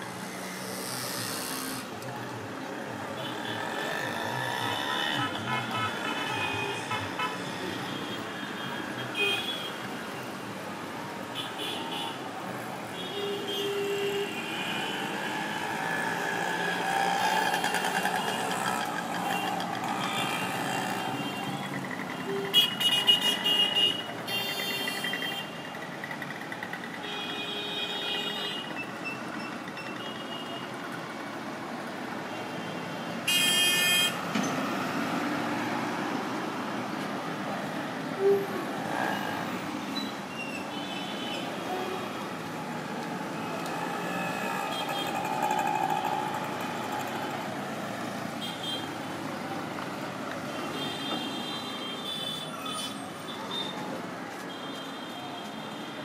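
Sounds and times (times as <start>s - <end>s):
passing vehicles hum: 0.0s - 27.1s, 30.7s - 54.5s
car horns honking: 17.3s - 25.5s, 33.3s - 34.2s.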